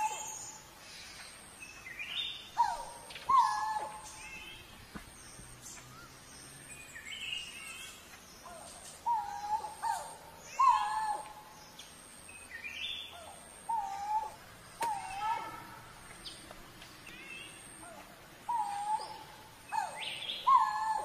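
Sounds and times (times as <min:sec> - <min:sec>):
cuckoo hooting: 0:00.0 - 0:00.5, 0:02.6 - 0:04.2, 0:08.4 - 0:11.4, 0:13.1 - 0:15.6, 0:17.8 - 0:21.0.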